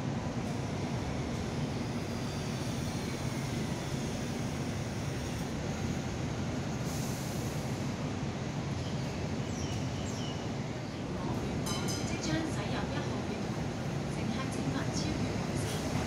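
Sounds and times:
tram rumble: 0:00.0 - 0:16.0
tram whine: 0:00.0 - 0:16.0
brief hiss: 0:06.8 - 0:07.8.

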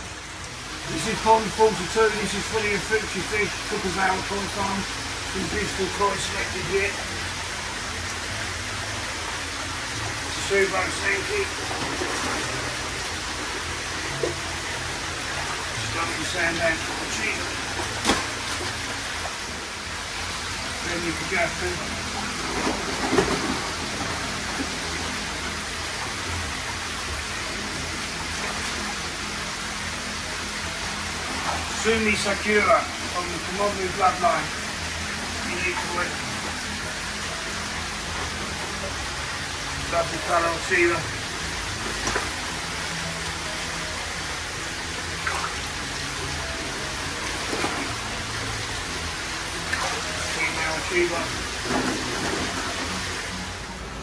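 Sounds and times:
water rushing: 0:00.0 - 0:54.0
fish splashing in water: 0:04.5 - 0:20.8, 0:21.6 - 0:31.8, 0:44.3 - 0:53.6.

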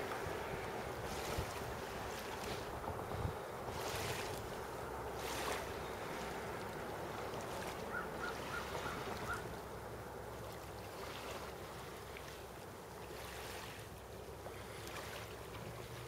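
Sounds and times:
wind gusts: 0:00.0 - 0:11.5
small waves lapping: 0:00.0 - 0:16.0.

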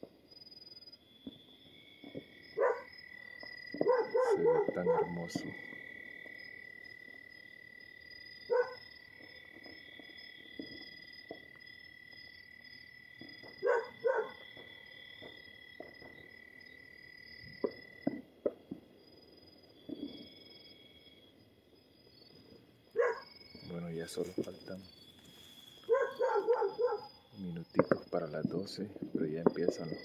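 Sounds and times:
night insects chirring: 0:00.0 - 0:30.0
dog barking: 0:02.6 - 0:02.9, 0:03.8 - 0:05.3, 0:08.5 - 0:08.8, 0:13.6 - 0:14.4, 0:23.0 - 0:23.3, 0:25.9 - 0:27.1.

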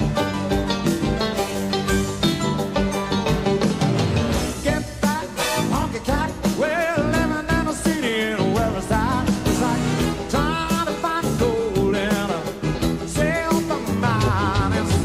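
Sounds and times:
bass: 0:00.0 - 0:15.0
drums: 0:00.0 - 0:15.0
piano: 0:00.0 - 0:15.0
man singing: 0:04.3 - 0:15.0.

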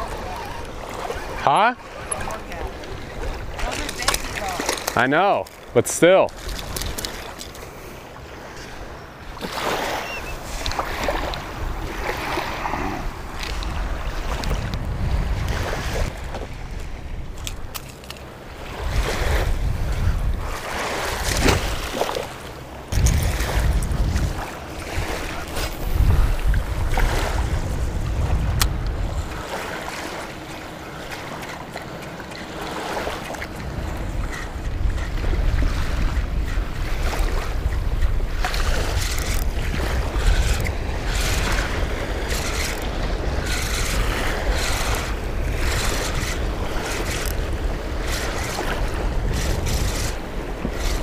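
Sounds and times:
small waves lapping: 0:00.0 - 0:51.0
wind on microphone: 0:08.2 - 0:17.9, 0:18.5 - 0:22.2, 0:22.9 - 0:31.5, 0:32.6 - 0:51.0.

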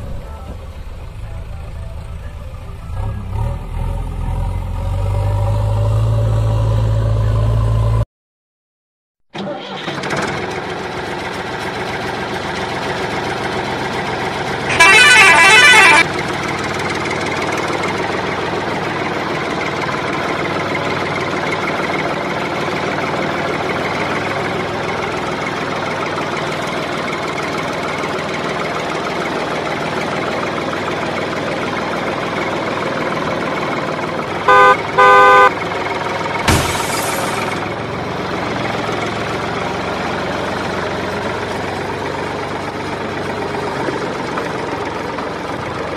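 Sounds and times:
vehicle engine running: 0:00.0 - 0:08.0, 0:10.3 - 0:45.9
truck horn blast: 0:14.6 - 0:16.1, 0:34.4 - 0:35.6
short horn toots: 0:14.7 - 0:16.0, 0:34.5 - 0:35.5.

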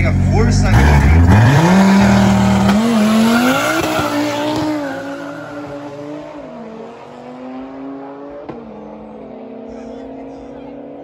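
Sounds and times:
car engines accelerating hard: 0:00.0 - 0:11.0.

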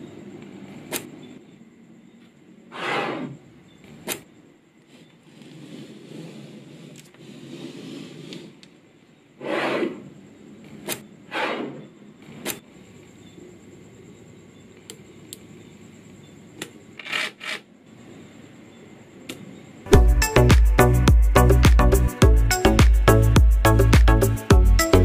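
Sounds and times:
scraping rubs: 0:04.8 - 0:08.8, 0:09.4 - 0:11.8.

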